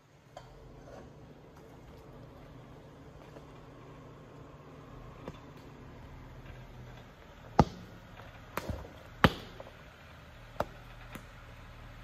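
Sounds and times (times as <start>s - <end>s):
engine rumbling: 0.0s - 12.0s
tires knocking on rocks: 6.4s - 9.9s.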